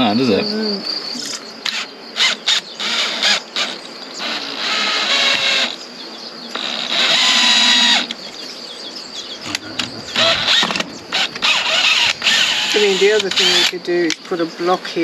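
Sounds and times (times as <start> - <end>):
cordless drill driving screws: 1.7 - 5.8, 6.5 - 8.1, 10.1 - 13.7.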